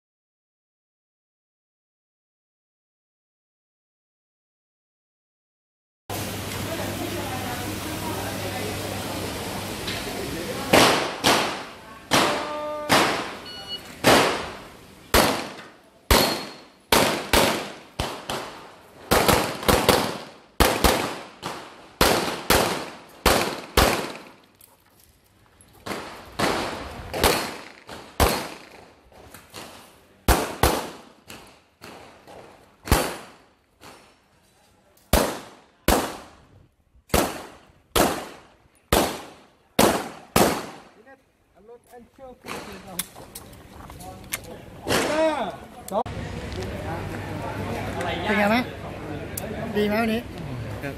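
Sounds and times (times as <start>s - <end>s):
pistol shots: 10.7s - 13.4s, 14.0s - 24.4s, 25.8s - 28.9s, 30.3s - 32.1s, 32.8s - 34.0s, 35.1s - 36.3s, 37.1s - 40.9s
shot timer beep: 13.4s - 13.9s.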